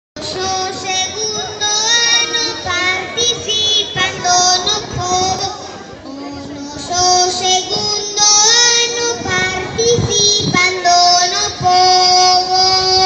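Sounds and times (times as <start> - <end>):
children singing in unison: 6.8 - 13.0.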